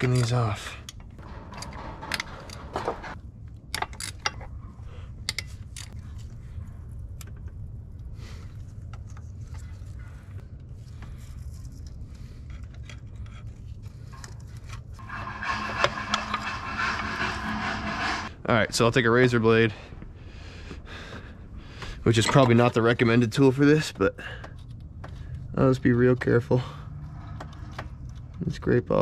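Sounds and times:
ratchet scraping: 0:15.0 - 0:18.3.

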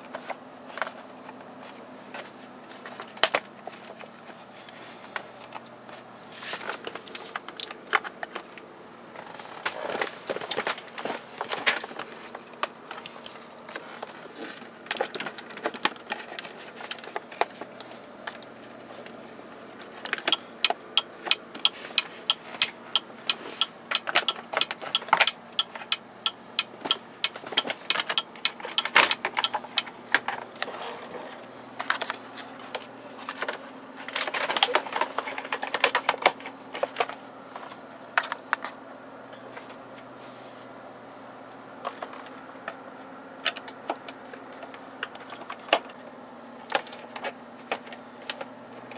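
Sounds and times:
plastic trim clicking and tapping: 0:20.1 - 0:29.9.

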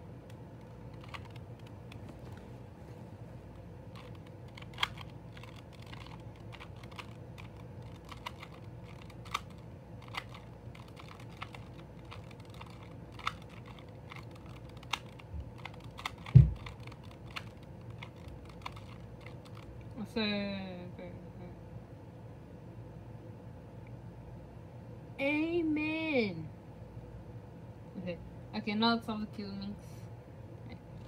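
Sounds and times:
puzzle cube clicking: 0:00.3 - 0:02.2, 0:03.9 - 0:19.9
dull low thump: 0:16.3 - 0:16.6.

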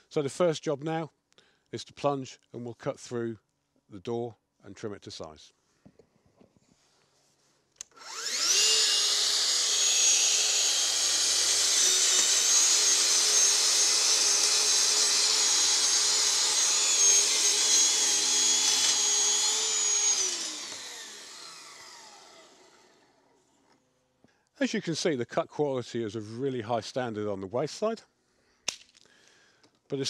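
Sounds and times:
track saw whining: 0:07.8 - 0:23.2.

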